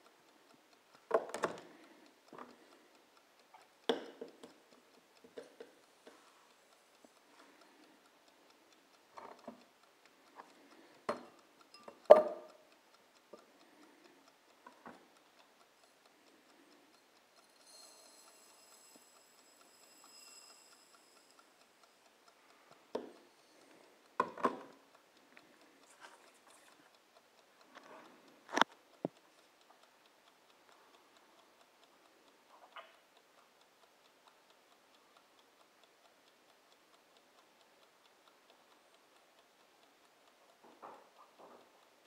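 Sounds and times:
kitchen timer ticking: 0.0 - 42.0
knocks and taps: 12.1 - 12.5.

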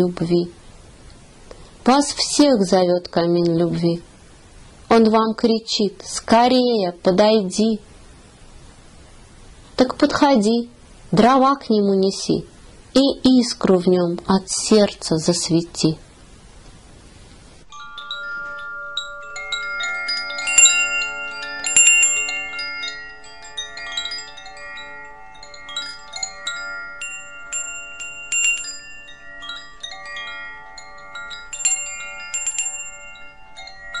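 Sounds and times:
faint hiss: 0.0 - 33.8
chimes ringing: 17.7 - 34.0.

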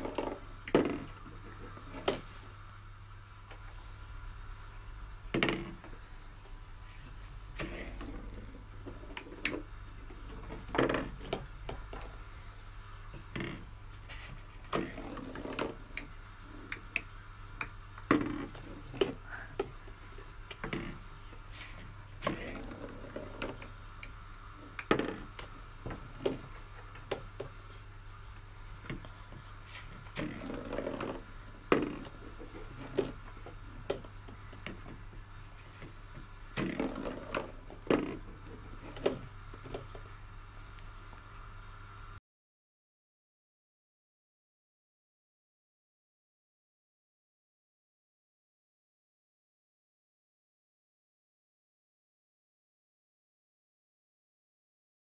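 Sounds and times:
balls rattling together: 28.6 - 35.2, 35.8 - 40.0.

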